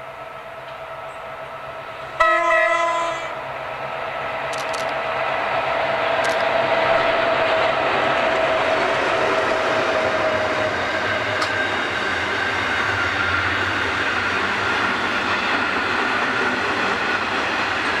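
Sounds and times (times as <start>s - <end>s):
freight train rumbling past: 0.0s - 18.0s.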